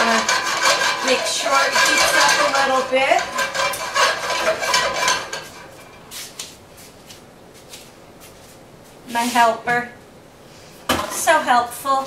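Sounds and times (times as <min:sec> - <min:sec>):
dishes and utensils clattering: 0:00.0 - 0:06.0.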